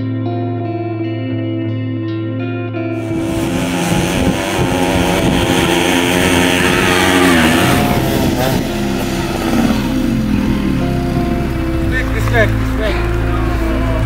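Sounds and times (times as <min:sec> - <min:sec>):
motorcycle engines revving: 0:03.0 - 0:14.0.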